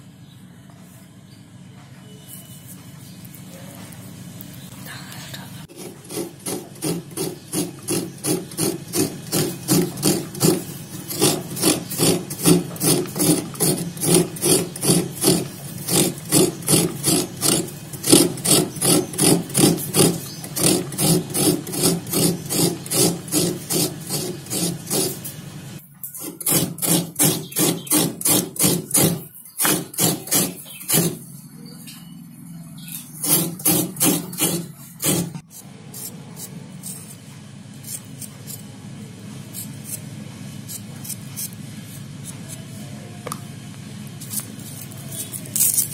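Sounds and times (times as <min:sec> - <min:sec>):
coconut scraping on metal grater: 0:05.7 - 0:25.4, 0:26.1 - 0:31.3, 0:32.9 - 0:37.2, 0:37.8 - 0:38.7, 0:39.4 - 0:42.9, 0:44.2 - 0:45.9.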